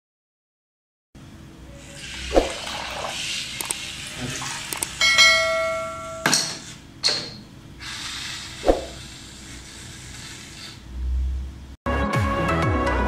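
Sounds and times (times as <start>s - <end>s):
bright bell chime: 5.0s - 6.3s
swishes: 8.6s - 9.0s.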